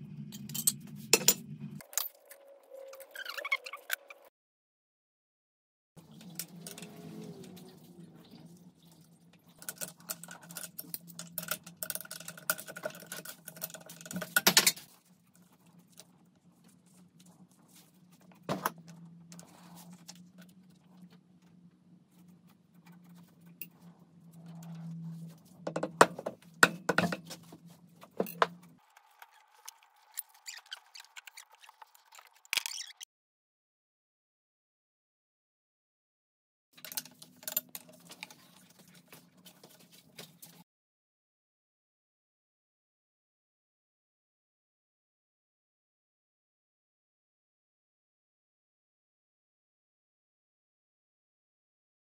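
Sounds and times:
metal engine parts clinking: 0.3 - 2.2.

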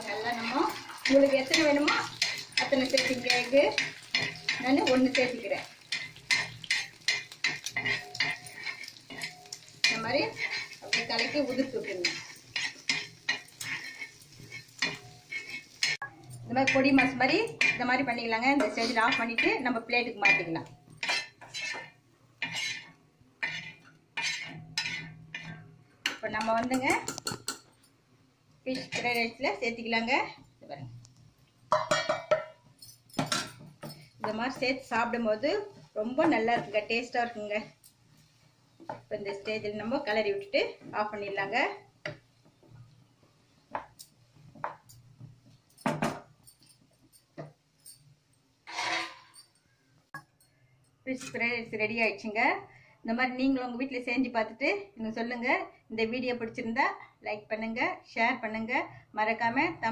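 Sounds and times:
metal spatula scraping griddle: 0.0 - 25.7, 48.6 - 49.4.

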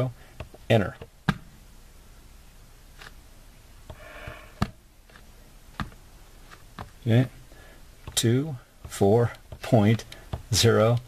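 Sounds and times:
soft breathy rustle: 3.9 - 4.7.

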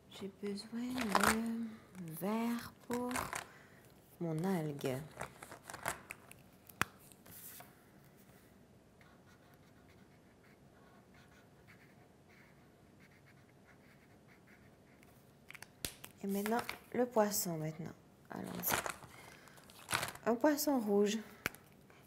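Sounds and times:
marker scratching on paper: 9.0 - 15.1.

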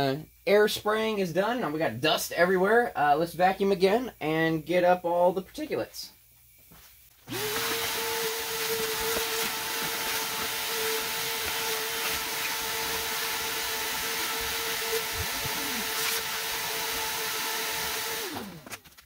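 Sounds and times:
vacuum cleaner running: 7.2 - 18.8.

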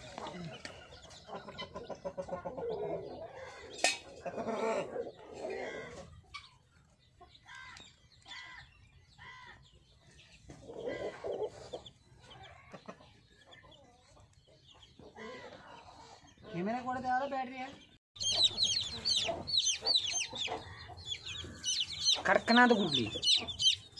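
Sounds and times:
chicks peeping: 0.0 - 23.9
hen clucking low: 18.2 - 23.9.

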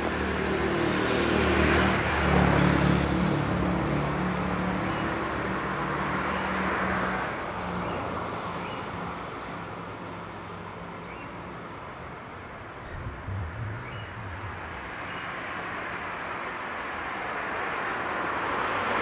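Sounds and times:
vehicle engine humming: 12.4 - 17.1.

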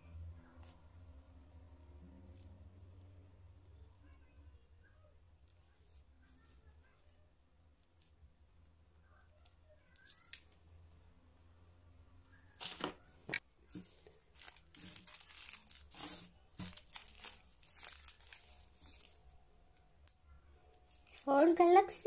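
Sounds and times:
wrappers crinkling: 12.3 - 22.0.

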